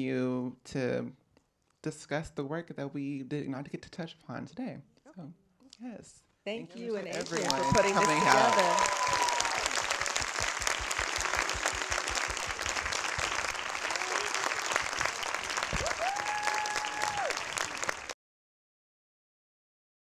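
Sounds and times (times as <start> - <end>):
audience applauding: 7.0 - 18.2.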